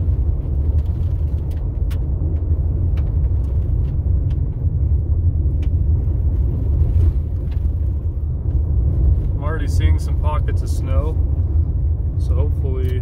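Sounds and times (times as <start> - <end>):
gravel ticks: 0.0 - 9.4
tyre and engine rumble: 0.0 - 13.0.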